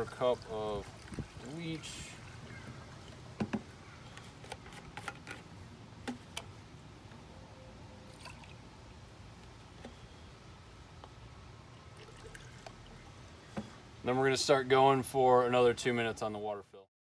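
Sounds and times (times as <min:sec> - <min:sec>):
liquid trickling through funnel: 0:00.0 - 0:03.3, 0:08.0 - 0:09.0, 0:11.6 - 0:13.8
plastic jug handled: 0:00.0 - 0:06.6, 0:11.8 - 0:13.8
low steady hum: 0:00.0 - 0:16.7.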